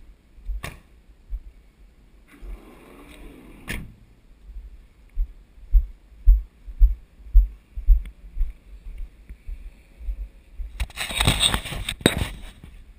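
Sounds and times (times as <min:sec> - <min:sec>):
microphone rustling and crackling: 0:10.0 - 0:12.9.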